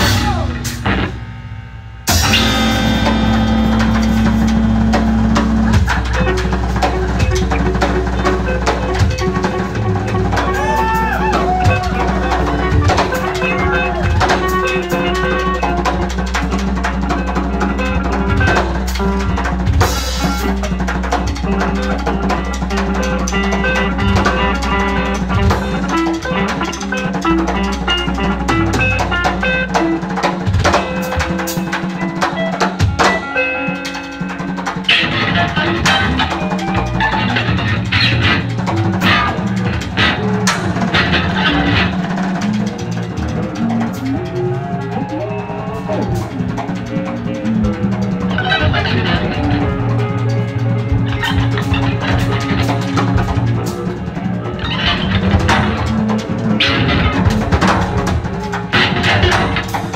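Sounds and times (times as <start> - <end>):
droning electric guitars: 0.0 - 59.9
drum kit playing: 0.0 - 59.9.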